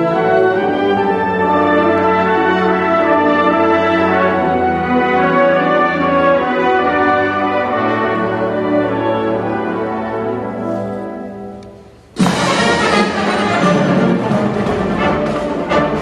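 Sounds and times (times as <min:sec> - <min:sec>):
marching band brass chords: 0:12.2 - 0:16.0.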